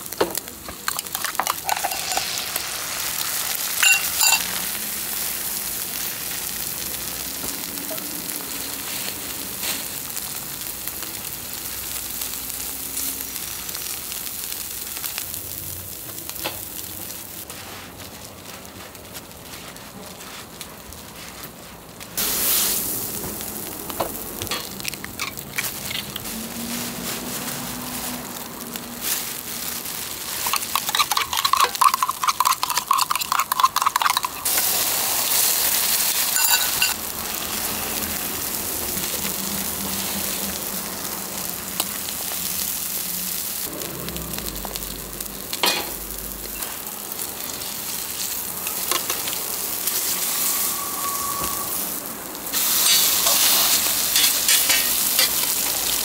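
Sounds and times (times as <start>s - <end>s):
food sizzling on a griddle: 0.0s - 56.0s.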